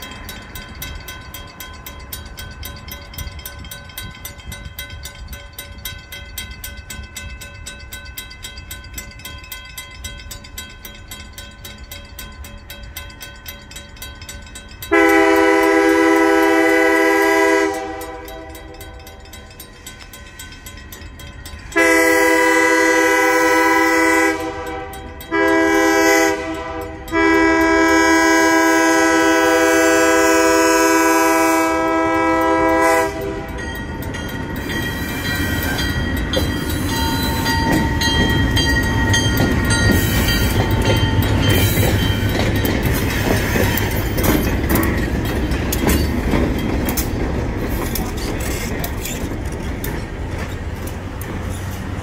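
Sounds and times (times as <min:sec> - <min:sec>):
locomotive engine rumbling: 0:00.0 - 0:52.0
train wheels clattering: 0:00.0 - 0:52.0
locomotive air horn: 0:14.9 - 0:18.6, 0:21.8 - 0:33.6.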